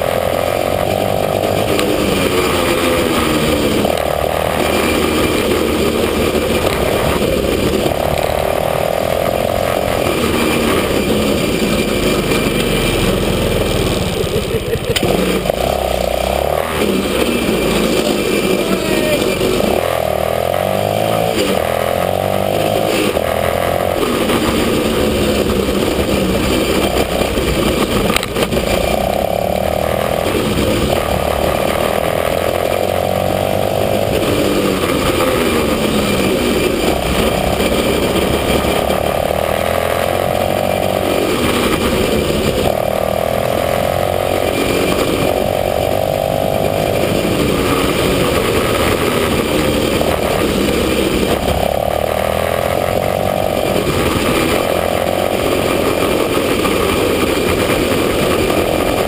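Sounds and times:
small engine revving: 0.0 - 59.0.

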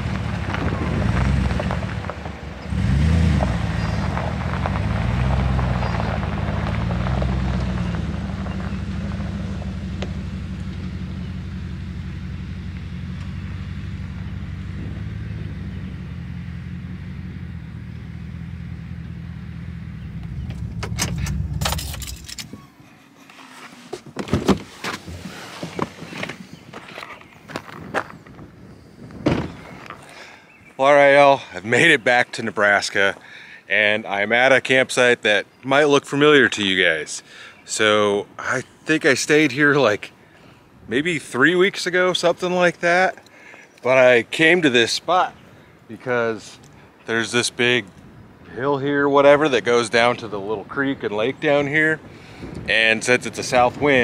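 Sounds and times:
truck engine running: 0.0 - 22.4
car door opening: 20.2 - 22.8, 23.4 - 26.4
keys rattling: 20.7 - 22.6.

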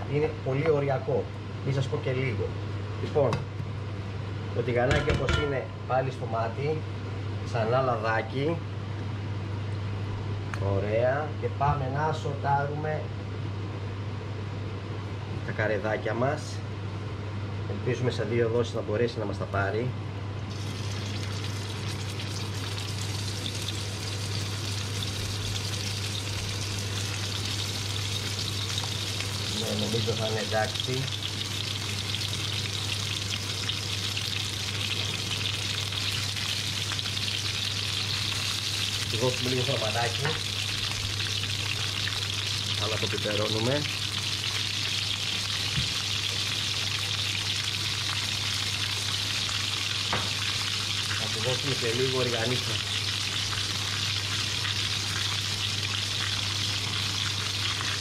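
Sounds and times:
cooker hood fan hum: 0.0 - 58.0
meat sizzling in frying pan: 20.5 - 58.0.

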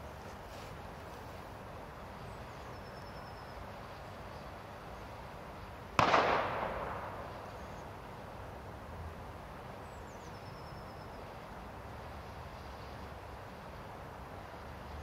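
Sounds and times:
steady hiss: 0.0 - 15.0
firecracker bang: 6.0 - 7.4.

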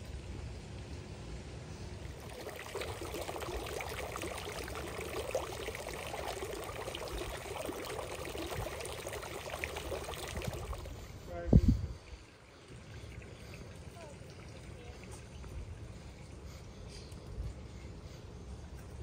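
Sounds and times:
fountain water splashing: 2.0 - 11.0, 12.2 - 16.4.

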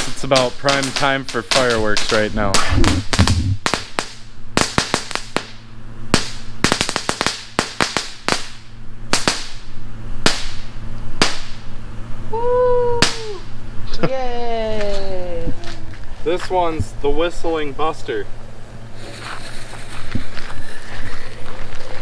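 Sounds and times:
firework crackling pops: 0.0 - 11.7, 12.9 - 13.5.

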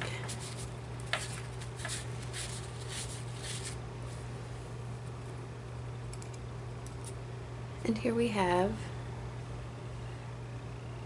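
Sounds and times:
low electrical hum: 0.0 - 11.0
paper towel rustling: 0.1 - 4.3.

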